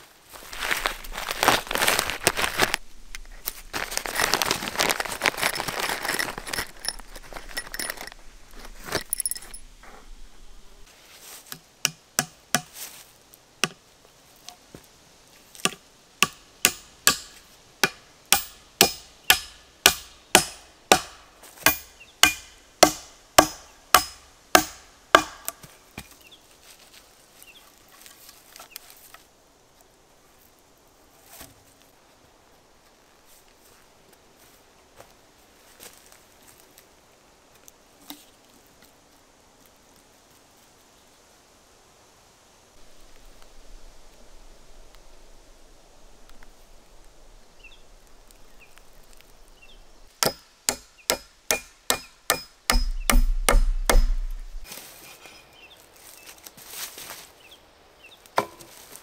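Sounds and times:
plastic sheeting crinkling: 0:00.0 - 0:07.4
axe striking a log: 0:11.5 - 0:12.8, 0:15.6 - 0:26.2, 0:50.2 - 0:54.6, 0:58.4 - 0:58.8.

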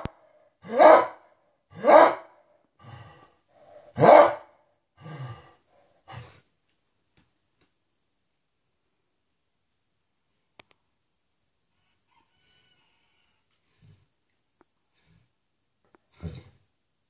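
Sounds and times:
dog howling barks: 0:00.6 - 0:01.2, 0:01.8 - 0:02.3, 0:03.9 - 0:04.5.

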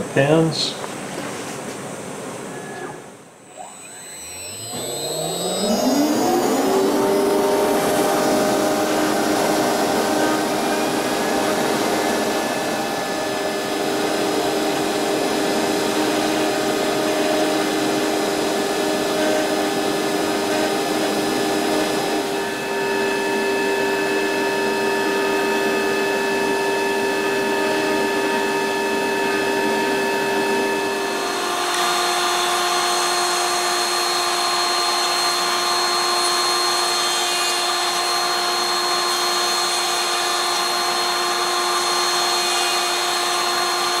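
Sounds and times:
table router running: 0:02.6 - 0:44.0
router spindle milling wood: 0:03.4 - 0:44.0
dust extraction: 0:03.5 - 0:33.2.

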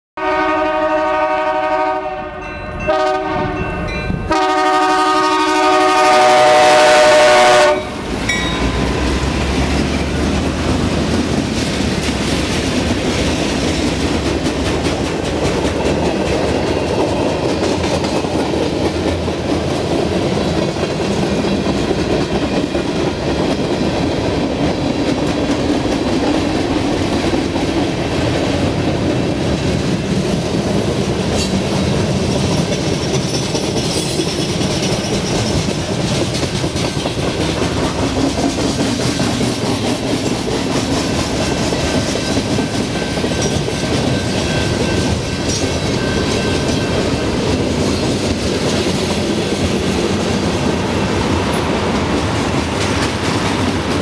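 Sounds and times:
train air horn blasts: 0:00.2 - 0:08.1
freight train rumbling past: 0:00.2 - 0:54.0
wheels clicking over rail joints: 0:08.3 - 0:50.8.

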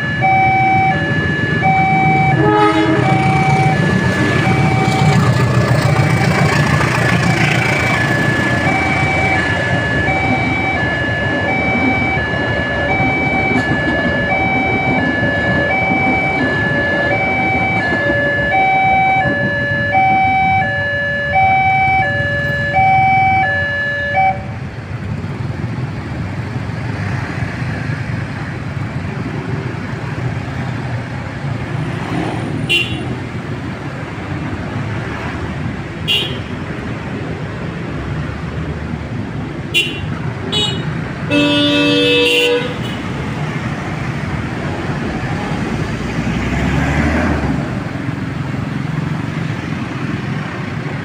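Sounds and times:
level crossing alarm two tones: 0:00.0 - 0:05.3, 0:07.7 - 0:24.6.

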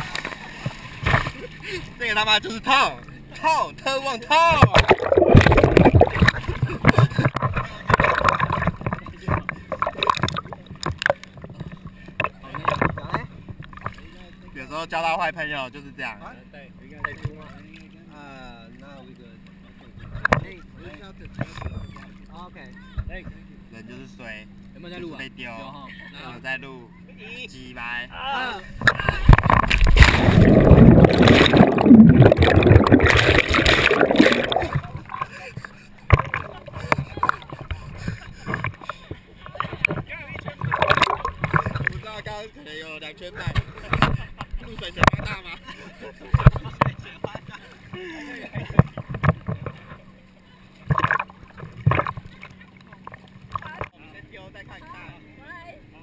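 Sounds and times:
water splashing and bubbling: 0:04.6 - 0:14.2, 0:28.8 - 0:42.2, 0:50.8 - 0:54.0
water sloshing and dripping: 0:04.6 - 0:14.3, 0:28.8 - 0:42.2, 0:50.8 - 0:54.0.

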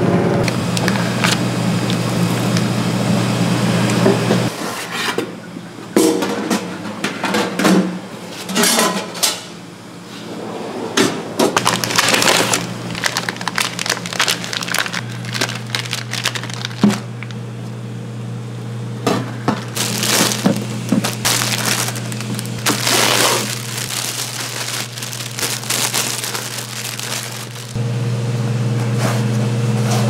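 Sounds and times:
steady low hum: 0:09.6 - 0:28.3.

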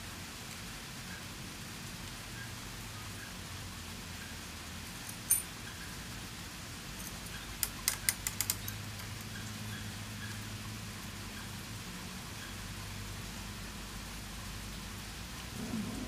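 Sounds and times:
sharp metallic clicks: 0:07.6 - 0:08.8.

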